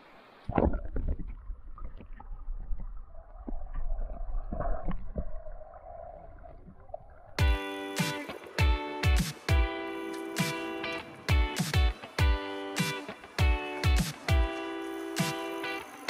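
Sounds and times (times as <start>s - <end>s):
underwater river rumble: 0.0s - 7.4s
underwater knocks and bumps: 0.5s - 5.5s
guitar music: 7.4s - 16.0s.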